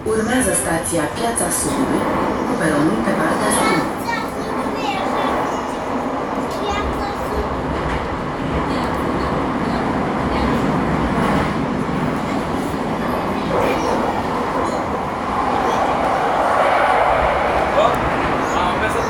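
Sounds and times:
train wheels on track: 0.0 - 19.0.

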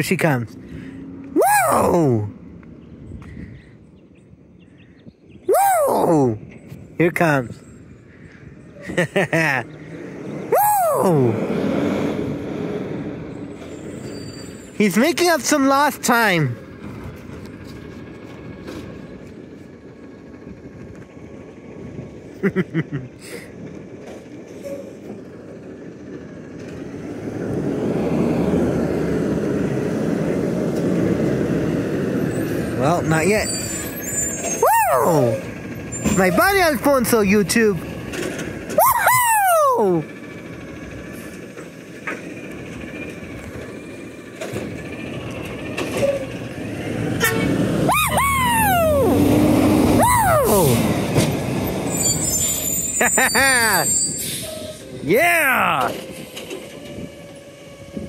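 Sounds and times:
garbage truck diesel engine: 0.0 - 58.0
person whooping: 1.3 - 2.3, 5.5 - 6.4, 10.5 - 11.4, 34.5 - 35.5, 38.7 - 40.1, 47.9 - 51.0, 53.2 - 53.9.

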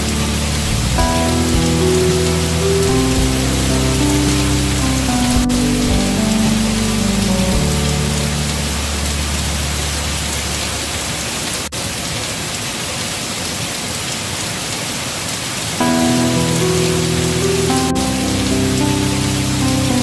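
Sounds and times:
sustained music chords: 0.0 - 11.2, 15.8 - 20.0
heavy rain on foliage: 0.0 - 20.0.

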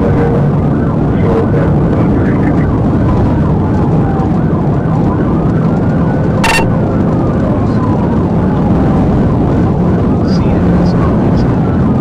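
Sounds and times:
police siren wailing: 0.0 - 12.0
road and engine noise: 0.0 - 12.0.

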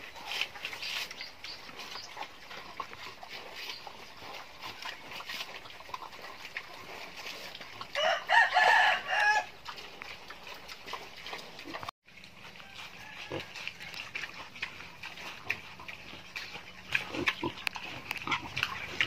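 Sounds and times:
rooster crowing: 8.0 - 9.5, 12.6 - 14.0.

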